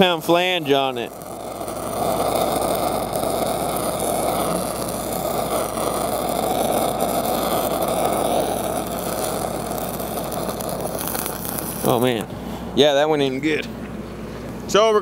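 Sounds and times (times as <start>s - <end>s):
welding arc crackling: 0.0s - 12.5s
steady low hum: 0.0s - 15.0s.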